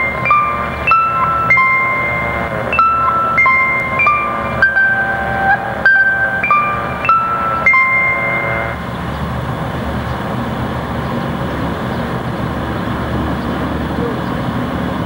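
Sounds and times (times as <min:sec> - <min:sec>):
station bell chime: 0:00.0 - 0:10.0
diesel railcar engine rumbling: 0:00.0 - 0:15.0.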